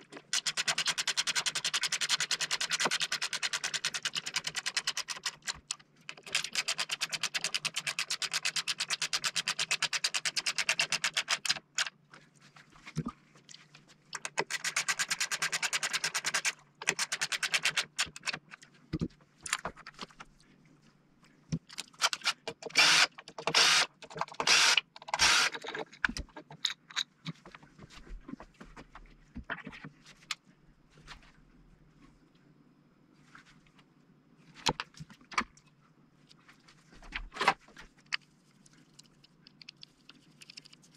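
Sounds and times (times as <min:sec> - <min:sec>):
rapid even tool clicking: 0:00.2 - 0:11.9, 0:14.2 - 0:18.4, 0:22.0 - 0:26.5
handling knocks and clicks: 0:21.5 - 0:30.4
electric screwdriver driving screws: 0:22.1 - 0:25.6.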